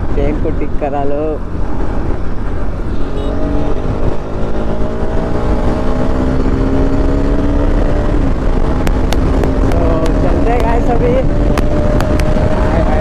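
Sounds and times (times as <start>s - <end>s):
motorcycle engine running: 1.3s - 13.0s
wind rushing: 1.4s - 13.0s.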